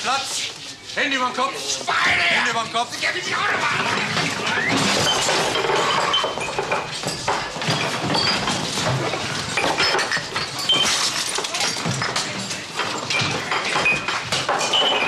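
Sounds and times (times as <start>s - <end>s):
clinks and knocks: 3.8s - 15.0s.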